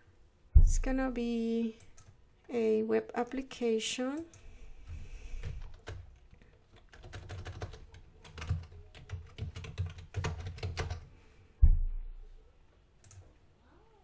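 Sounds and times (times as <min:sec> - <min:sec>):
computer keyboard typing: 0:05.4 - 0:11.1, 0:13.0 - 0:13.2.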